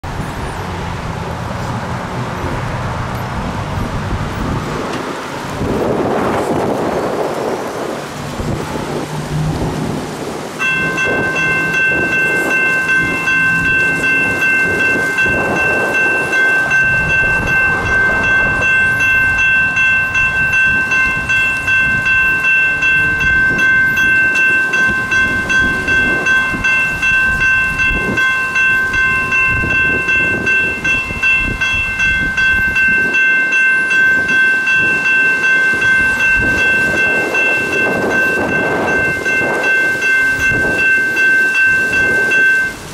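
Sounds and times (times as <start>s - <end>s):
wind buffeting microphone: 0.0s - 42.9s
railroad crossing bell ringing: 5.6s - 42.9s.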